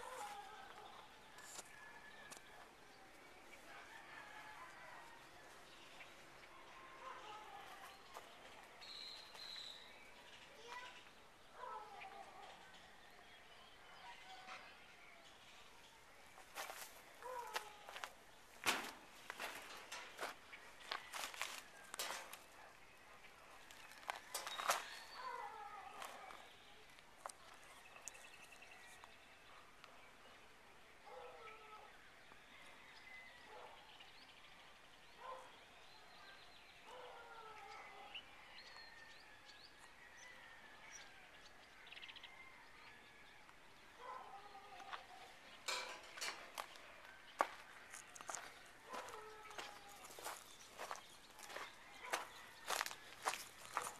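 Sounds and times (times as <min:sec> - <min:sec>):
footsteps crunching on gravel: 0:16.4 - 0:22.6, 0:23.6 - 0:25.2, 0:25.9 - 0:26.5, 0:45.8 - 0:53.9
birds chirping: 0:19.2 - 0:31.8, 0:43.9 - 0:53.9.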